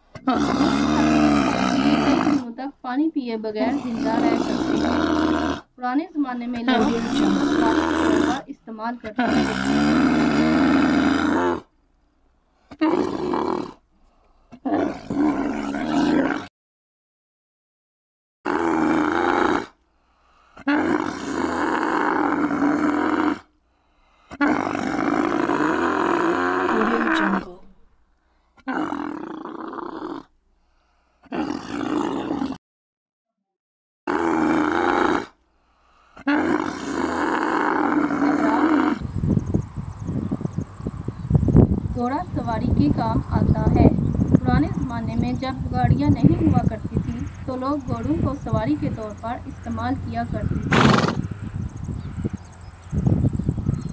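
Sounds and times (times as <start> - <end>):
camel calling: 0.1 - 2.7, 3.3 - 11.7, 14.6 - 16.4, 18.5 - 19.7, 24.4 - 27.9, 36.2 - 39.1, 42.0 - 52.5
insects chirring: 20.2 - 28.2, 35.8 - 53.9.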